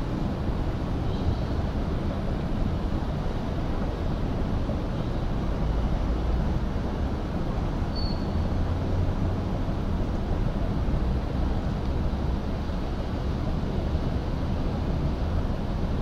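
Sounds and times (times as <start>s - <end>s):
harbour ambience rumble: 0.0s - 16.0s
short high chirp: 7.9s - 8.5s.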